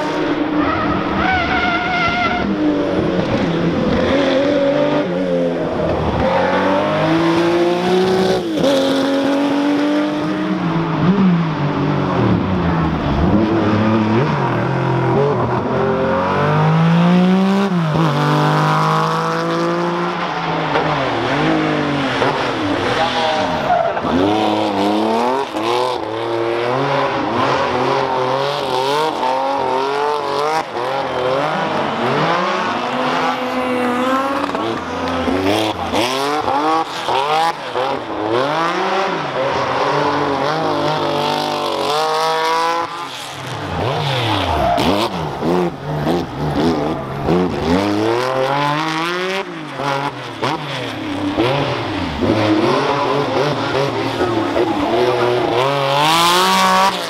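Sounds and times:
rally car engine revving: 0.0 - 57.0
tyre squeal: 0.6 - 3.0.

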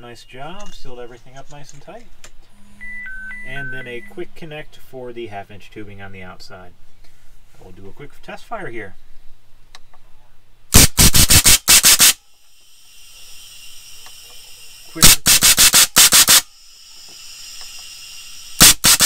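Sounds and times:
steady high air hiss: 3.5 - 19.0
air cannon blasts: 18.6 - 19.0.

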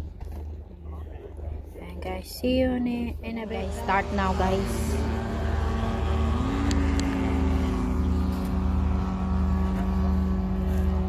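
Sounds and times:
model aircraft engine running: 3.2 - 11.0.

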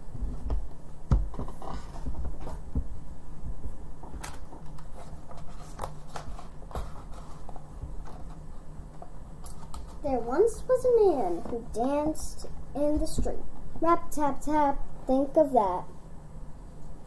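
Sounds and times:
book pages turning: 4.0 - 8.5, 9.4 - 10.0.

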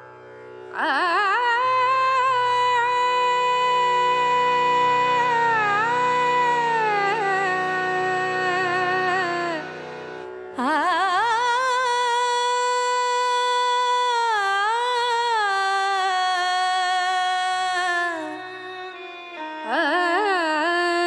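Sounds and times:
woman singing long held notes: 0.7 - 9.7, 10.6 - 18.4.

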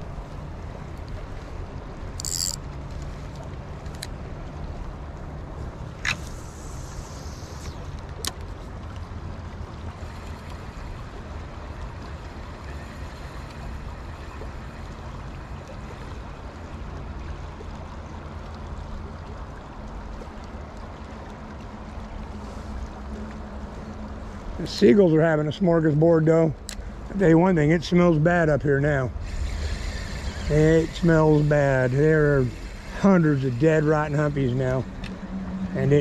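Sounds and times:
low hum: 0.0 - 36.0
river water rushing: 28.9 - 36.0.

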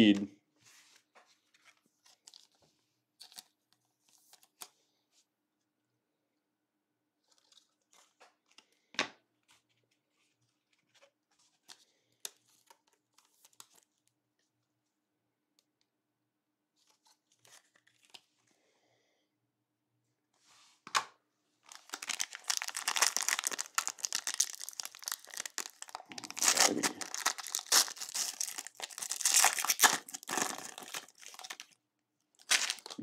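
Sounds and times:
foil wrapper tearing and crinkling: 21.7 - 31.7, 32.4 - 33.0.

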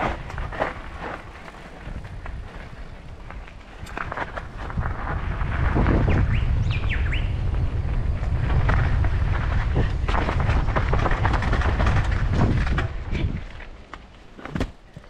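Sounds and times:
tyres crunching over gravel: 0.0 - 6.6, 7.5 - 15.0
wind rumble on microphone: 0.0 - 13.9
bike rattling over stones: 0.0 - 15.0
bird chirps: 6.1 - 7.4.

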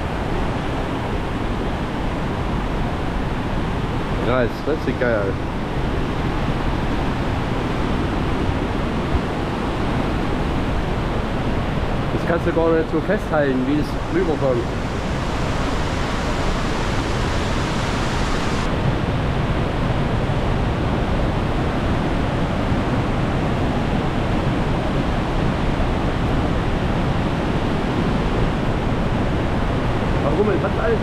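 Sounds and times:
waterfall rushing: 13.2 - 18.7.

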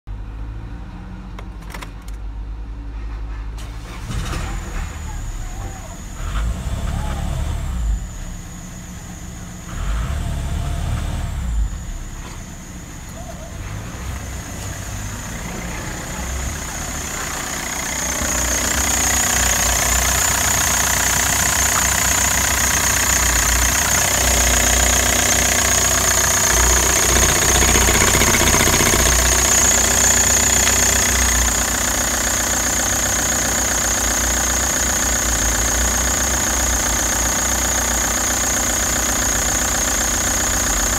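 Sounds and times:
diesel engine idling with clatter: 0.1 - 40.9
high whine: 11.2 - 34.5.

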